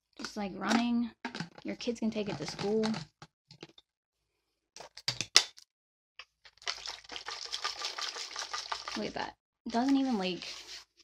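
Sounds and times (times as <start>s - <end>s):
water sloshing in shaken bottle: 6.5s - 10.7s.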